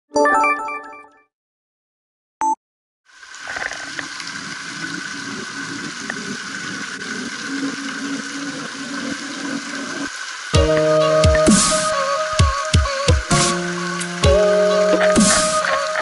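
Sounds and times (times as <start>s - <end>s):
fountain water splashing: 3.1s - 16.0s
music: 10.5s - 16.0s.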